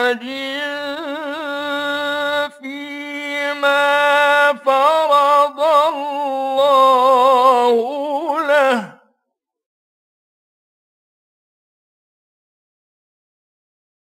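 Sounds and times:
man chanting melodically: 0:00.0 - 0:09.0.

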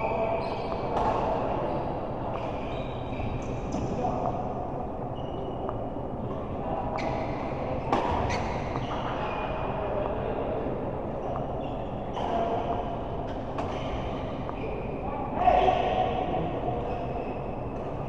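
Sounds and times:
shoes squeaking on court floor: 0:00.0 - 0:04.0, 0:05.2 - 0:05.8, 0:07.0 - 0:07.5, 0:08.1 - 0:09.6.

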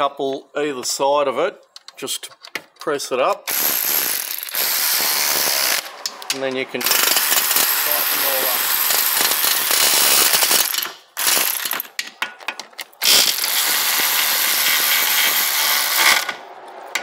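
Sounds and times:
cordless power driver running: 0:03.5 - 0:05.9, 0:06.8 - 0:09.9, 0:13.0 - 0:16.3.

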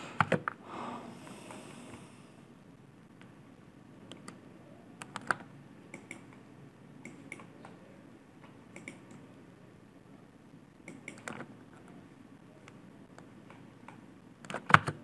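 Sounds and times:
low room hum: 0:00.0 - 0:15.0
keyboard and mouse clicks: 0:00.2 - 0:00.6, 0:04.0 - 0:04.4, 0:05.0 - 0:06.4, 0:07.0 - 0:07.8, 0:08.4 - 0:09.3, 0:10.8 - 0:12.0, 0:12.6 - 0:15.0.

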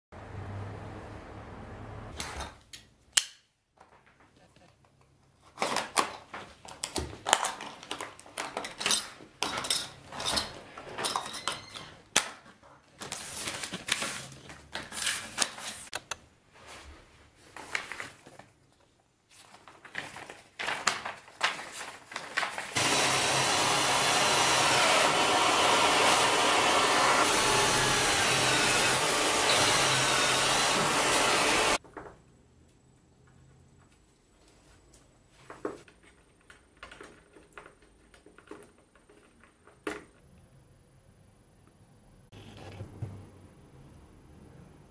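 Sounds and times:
plastic packaging and paper rustling: 0:05.3 - 0:09.4, 0:12.4 - 0:15.9, 0:16.5 - 0:22.8
power drill drilling: 0:22.8 - 0:31.8.

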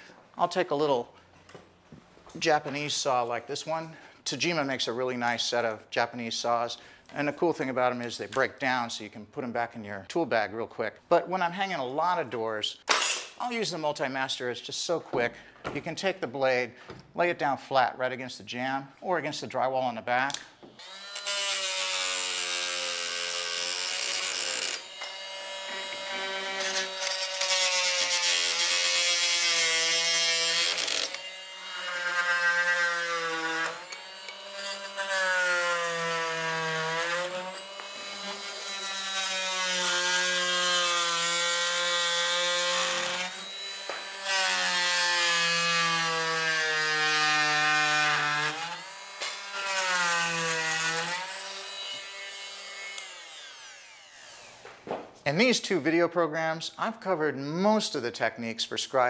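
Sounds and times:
oscillating multi-tool cutting wood: 0:20.8 - 0:54.6.

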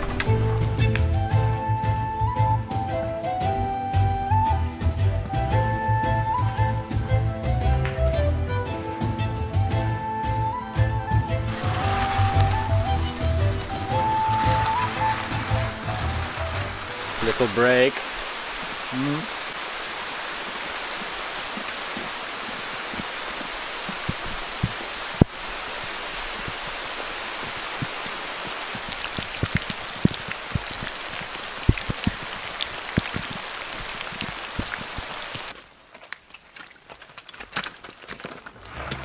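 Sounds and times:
rain hissing in woodland: 0:00.0 - 0:08.5, 0:11.1 - 0:36.9
drops ticking on leaves: 0:11.5 - 0:19.6, 0:20.2 - 0:38.4.

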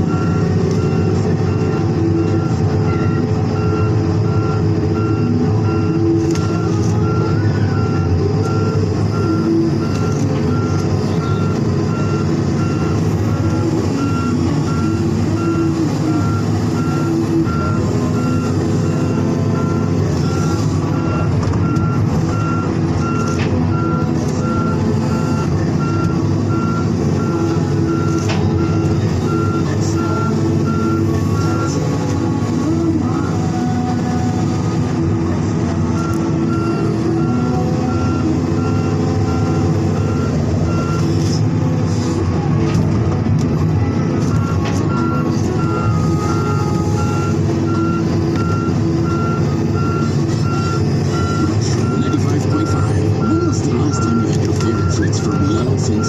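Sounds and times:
rapid reversing alarm beeps: 0:00.0 - 0:35.1, 0:36.0 - 0:41.3, 0:44.3 - 0:56.0
diesel engine running: 0:00.0 - 0:56.0.

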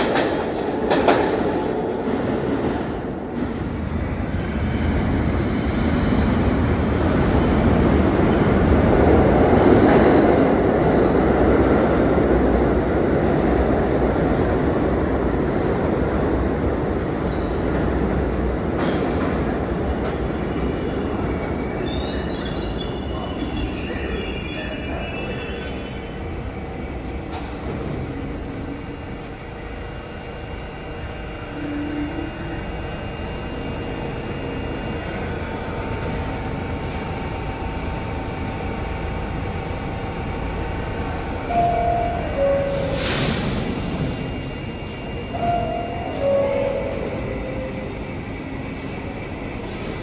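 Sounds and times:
train equipment humming: 0:00.0 - 0:50.0
train wheels squealing: 0:20.4 - 0:26.5
air hiss: 0:42.7 - 0:44.2.

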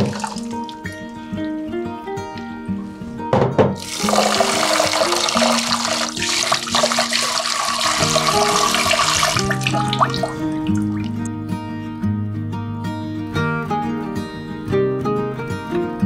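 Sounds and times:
tap water splashing into bowl: 0:00.0 - 0:00.9, 0:03.6 - 0:11.3
soft background music: 0:00.0 - 0:16.0.

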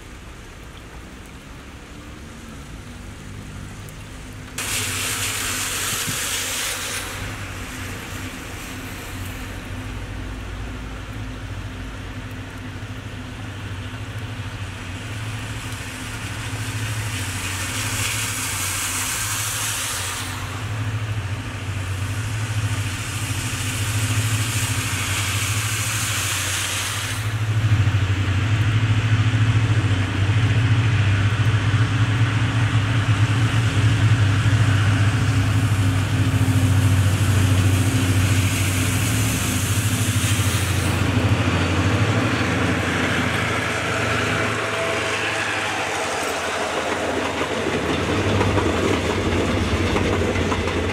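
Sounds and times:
locomotive engine drone: 0:00.0 - 0:50.9
high hiss: 0:04.6 - 0:09.6, 0:15.9 - 0:27.6, 0:34.5 - 0:49.7.

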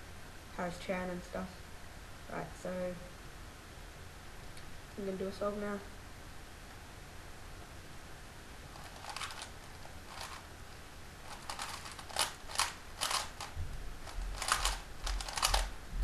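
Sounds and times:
plastic puzzle cube clacking: 0:08.7 - 0:10.5, 0:11.3 - 0:15.7.

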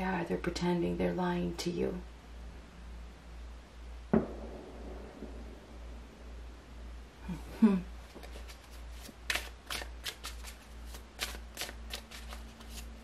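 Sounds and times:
person humming: 0:07.2 - 0:08.0
cards being shuffled: 0:08.1 - 0:13.0.

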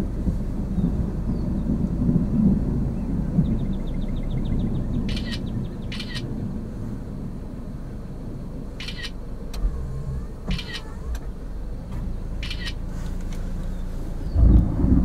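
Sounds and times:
thunder roll: 0:00.0 - 0:06.7, 0:14.3 - 0:15.0
low rumble: 0:00.0 - 0:15.0
high-pitched animal calls: 0:05.1 - 0:06.3, 0:08.8 - 0:09.2, 0:10.5 - 0:11.1, 0:12.4 - 0:12.8.

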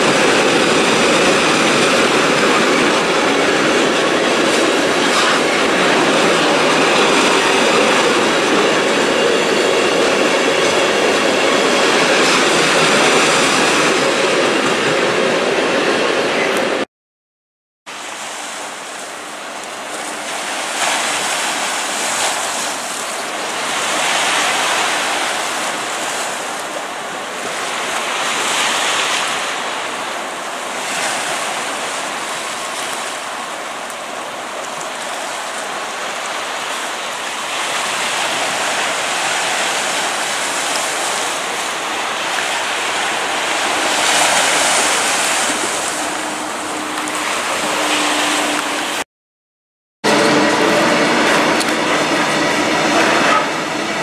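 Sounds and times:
sea surf washing: 0:00.0 - 0:16.8, 0:17.9 - 0:49.0, 0:50.0 - 0:54.0.

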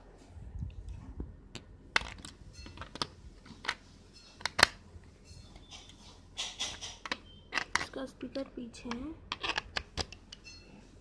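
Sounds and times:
plastic housing handled: 0:01.5 - 0:03.8, 0:06.6 - 0:08.0, 0:08.9 - 0:10.4
batteries clicking into compartment: 0:01.6 - 0:03.8, 0:04.4 - 0:04.8, 0:06.6 - 0:10.4.

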